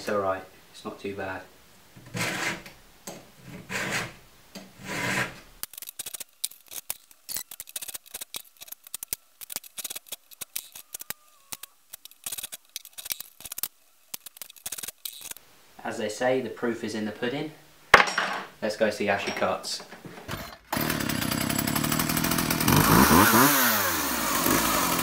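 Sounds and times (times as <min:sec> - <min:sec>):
file rasping on chain tooth: 0:02.1 - 0:02.6, 0:03.6 - 0:04.2, 0:04.8 - 0:05.4
metallic clicks: 0:05.6 - 0:15.4.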